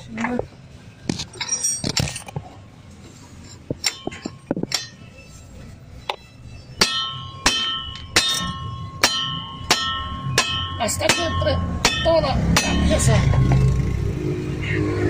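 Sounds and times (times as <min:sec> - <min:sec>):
hammer striking ringing metal: 0:03.8 - 0:05.2, 0:06.8 - 0:13.8.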